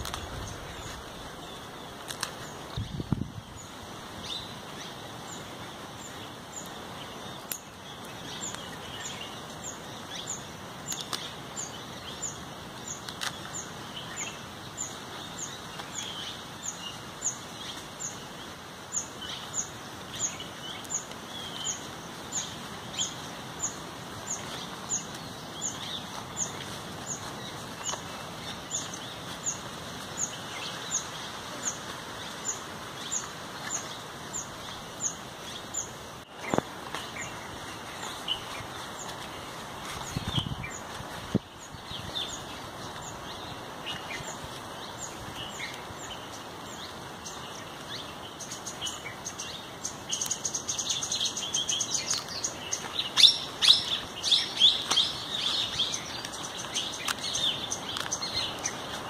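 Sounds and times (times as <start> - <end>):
other birds chirping softly: 0.0 - 59.0
outdoor background hiss: 0.0 - 59.0.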